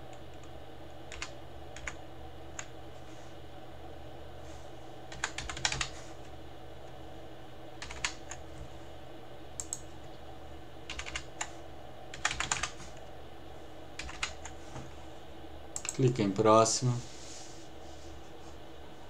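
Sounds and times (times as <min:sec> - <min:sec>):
steady low hum: 0:00.0 - 0:19.0
keyboard typing: 0:01.1 - 0:02.0, 0:05.1 - 0:06.0, 0:07.8 - 0:08.4, 0:10.9 - 0:11.5, 0:12.1 - 0:12.8, 0:14.0 - 0:14.6.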